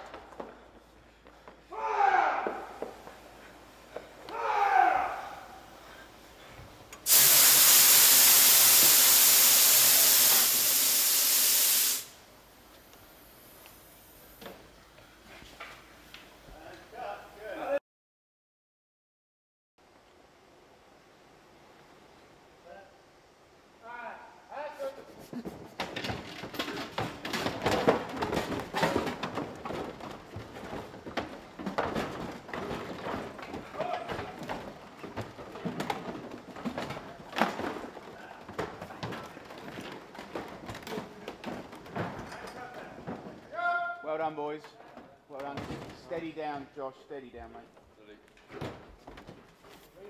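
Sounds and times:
loud steady hiss: 5.6s - 14.7s
wooden furniture knocking and clattering: 25.4s - 43.5s, 45.0s - 46.2s, 48.4s - 49.8s.

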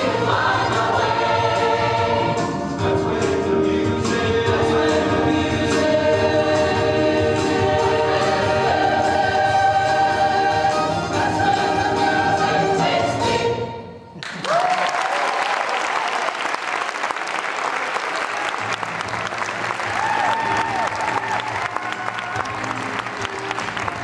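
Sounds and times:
choir singing: 0.0s - 14.0s
audience applause: 14.2s - 24.0s
person whooping: 14.3s - 16.3s, 19.9s - 22.6s.

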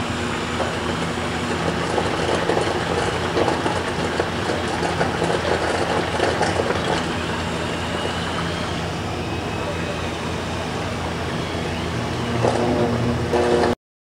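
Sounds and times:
machine humming: 0.0s - 13.8s.

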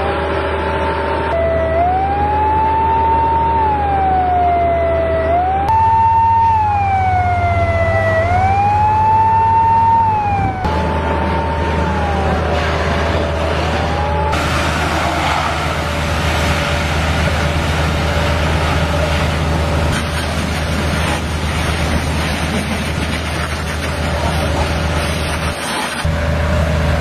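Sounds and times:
siren wailing: 0.0s - 20.1s.

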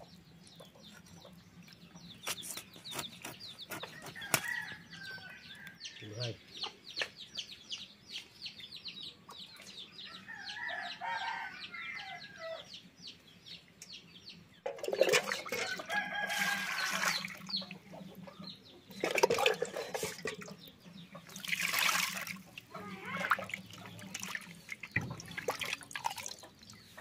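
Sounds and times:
birds chirping rapidly: 0.0s - 27.0s
water splashing in a bowl: 14.7s - 17.4s, 19.0s - 20.5s, 21.3s - 26.8s
chicken clucking: 17.4s - 21.4s.

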